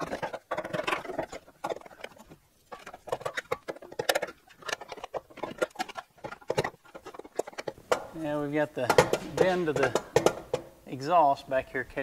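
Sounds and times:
exhaust pipe knocking and rattling: 0:00.0 - 0:10.8.

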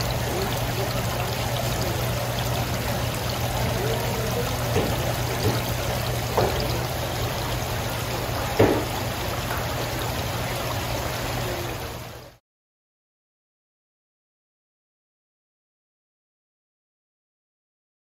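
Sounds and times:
water spraying and splashing: 0:00.0 - 0:12.4.

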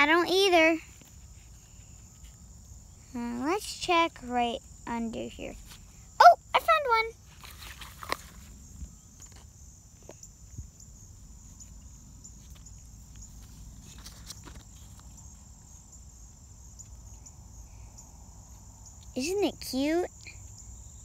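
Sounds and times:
insects droning: 0:00.0 - 0:21.0
leaf clicks and rustles: 0:07.2 - 0:08.6, 0:11.5 - 0:15.4.

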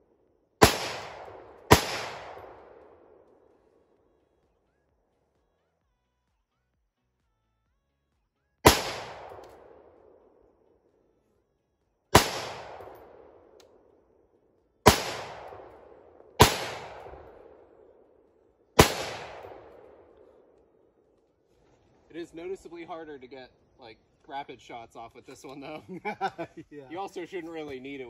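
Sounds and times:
rifle shots with echo: 0:00.6 - 0:04.1, 0:08.6 - 0:11.0, 0:12.1 - 0:14.2, 0:14.8 - 0:21.1.

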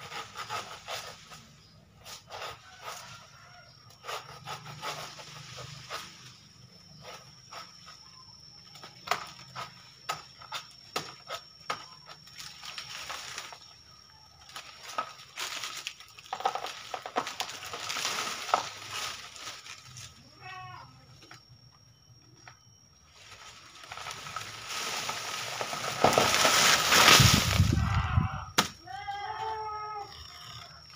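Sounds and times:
dry leaves rustling and tearing: 0:14.5 - 0:20.2, 0:23.2 - 0:28.2.

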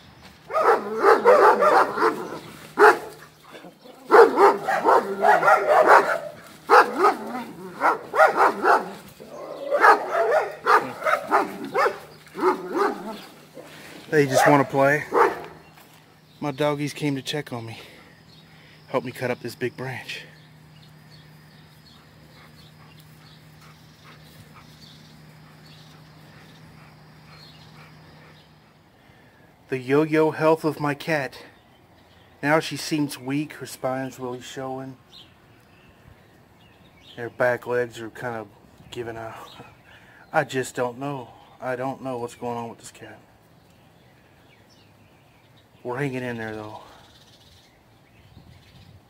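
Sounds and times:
steady low hum: 0:00.0 - 0:32.6
dogs barking: 0:00.4 - 0:15.9, 0:21.8 - 0:28.9.

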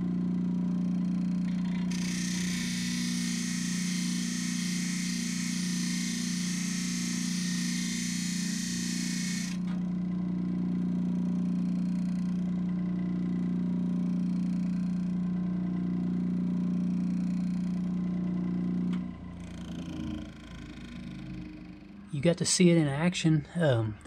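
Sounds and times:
grinder motor humming: 0:01.2 - 0:09.9
grinder grinding metal blade: 0:01.9 - 0:09.6.

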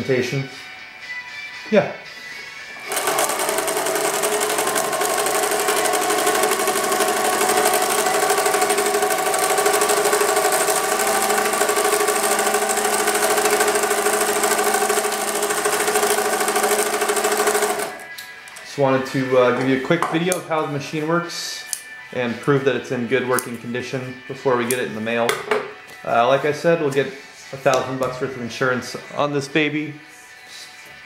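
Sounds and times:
motor hum: 0:02.8 - 0:18.0
sewing machine stitching rattle: 0:02.8 - 0:18.0.

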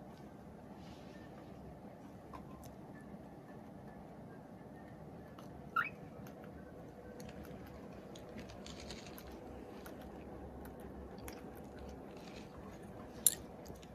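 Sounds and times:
cockatiel chirp: 0:05.7 - 0:06.1
bird cracking seeds: 0:07.2 - 0:10.3.

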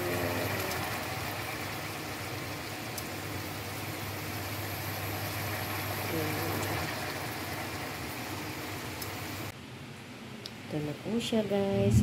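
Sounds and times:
low mechanical hum: 0:00.0 - 0:12.0
sauce simmering and bubbling: 0:00.1 - 0:09.5.

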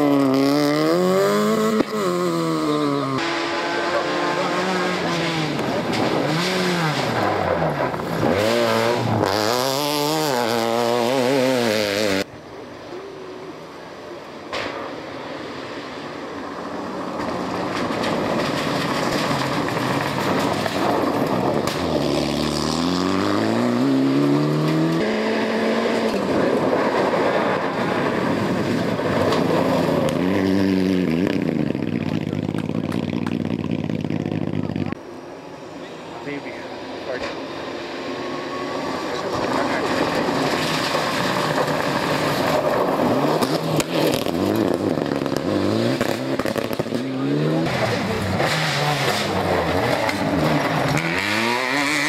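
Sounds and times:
rally car engine revving: 0:00.0 - 0:12.3, 0:16.5 - 0:35.3, 0:36.3 - 0:52.0
approaching rally car revving: 0:00.0 - 0:12.4, 0:15.4 - 0:52.0.

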